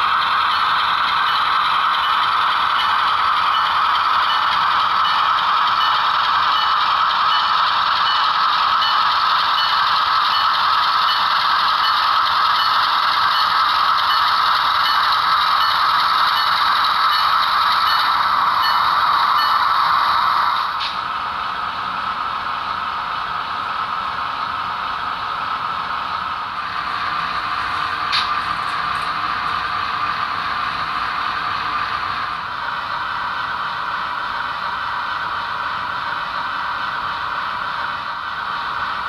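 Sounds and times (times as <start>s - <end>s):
model train wheels rattling on rail: 0.0s - 21.0s.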